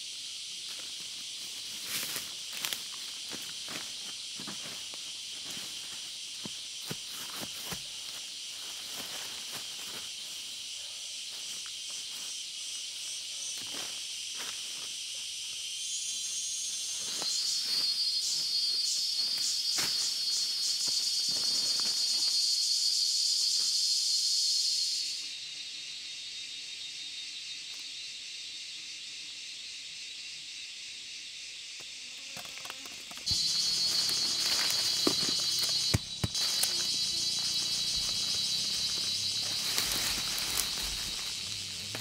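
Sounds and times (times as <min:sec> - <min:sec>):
forest insects droning: 0:00.0 - 0:42.0
pulsing insect chorus: 0:00.0 - 0:42.0
footsteps in leaf litter: 0:33.2 - 0:42.0.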